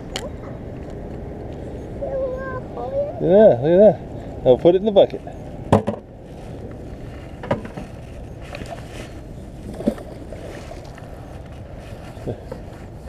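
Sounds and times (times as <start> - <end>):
wind rumble on microphone: 0.0 - 13.0
short knocks: 5.7 - 6.1.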